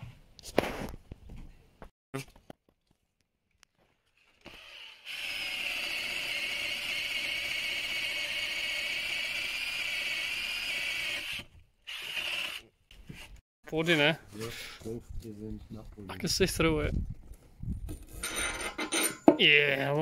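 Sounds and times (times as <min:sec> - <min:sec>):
cordless drill boring through wood: 0:04.3 - 0:12.7.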